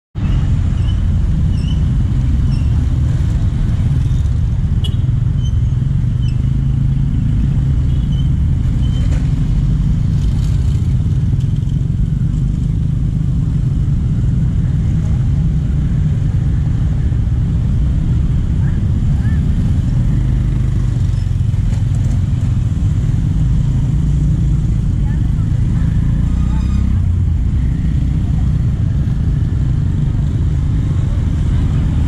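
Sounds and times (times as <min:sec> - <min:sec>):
low traffic rumble: 0:00.2 - 0:32.0
motorcycles passing: 0:00.2 - 0:32.0
three-wheeled vehicle passing: 0:19.2 - 0:32.0.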